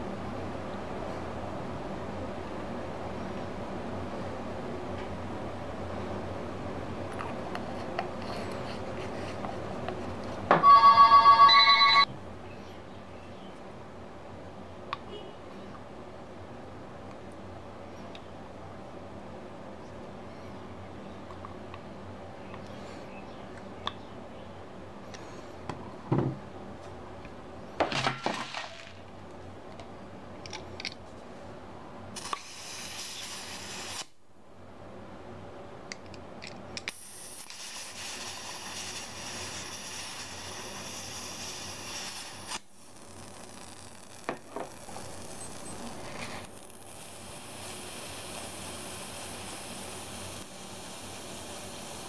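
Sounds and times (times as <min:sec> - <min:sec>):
gas hissing from a can: 0:32.2 - 0:34.2, 0:36.8 - 0:52.0.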